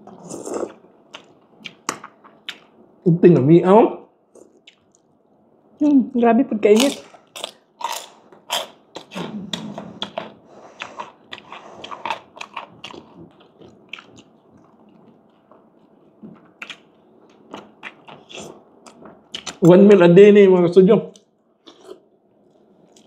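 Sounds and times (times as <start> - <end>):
person chewing crisp food: 6.8 - 19.6, 21.2 - 23.0.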